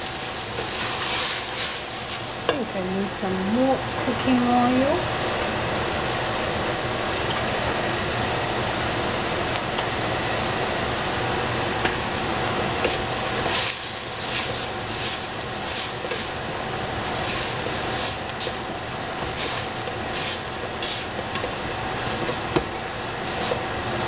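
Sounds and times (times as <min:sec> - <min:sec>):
vegetables sizzling in a pot: 0:00.0 - 0:24.0
wooden spatula scraping: 0:00.6 - 0:02.3.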